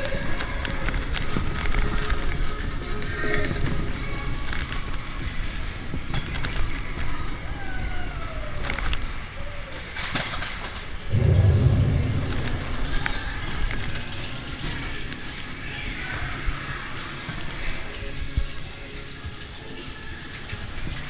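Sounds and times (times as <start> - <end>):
roller coaster rattling on track: 10.0 - 21.0
heavy low rumble: 11.1 - 14.6.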